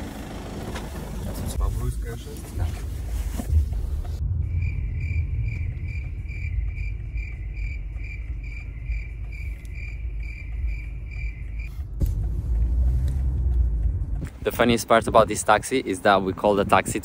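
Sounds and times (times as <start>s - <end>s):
car cabin rumble: 0.0s - 15.6s
cricket chirping: 4.1s - 11.9s.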